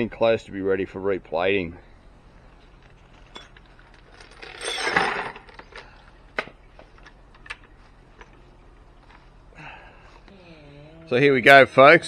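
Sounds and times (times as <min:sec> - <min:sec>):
metal bolts clinking in bucket: 0:02.8 - 0:05.9.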